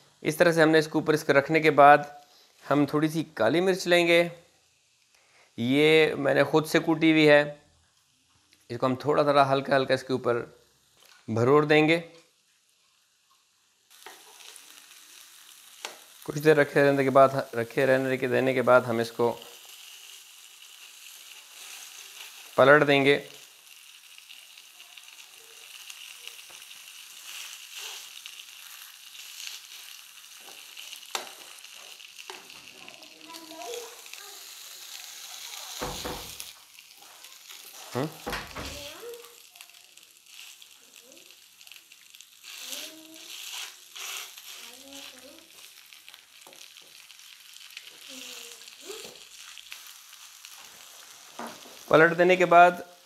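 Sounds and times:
meat sizzling in a frying pan: 2.4s - 7.3s, 7.9s - 53.0s
spatula scraping a pan: 26.4s - 32.6s, 42.4s - 45.8s.

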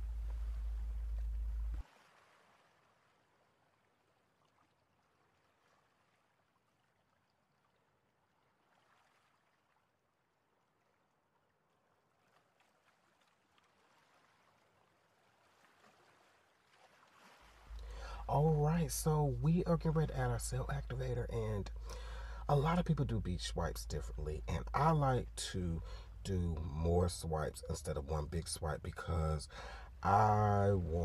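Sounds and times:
faint background hiss: 0.0s - 2.1s, 17.6s - 31.0s.

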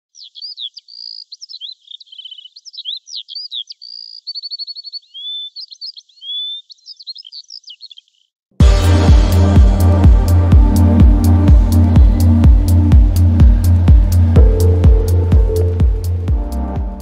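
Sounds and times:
songbird singing: 0.0s - 8.4s, 11.6s - 17.0s.

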